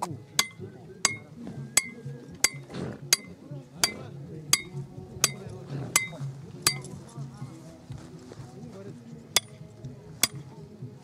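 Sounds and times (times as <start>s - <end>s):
hammer striking metal: 0.4s - 6.9s, 9.4s - 9.6s, 10.2s - 10.4s.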